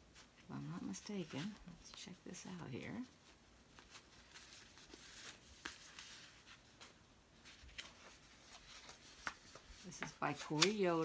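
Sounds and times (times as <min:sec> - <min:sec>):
paper rustling: 0:02.9 - 0:11.0.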